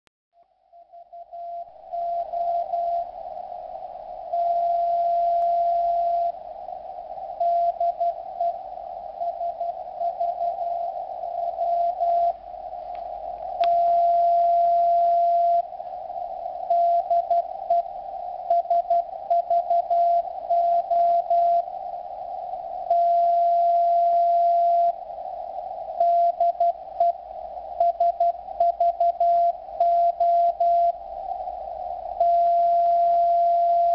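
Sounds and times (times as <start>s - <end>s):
faint radio band noise hiss: 1.1s - 33.9s.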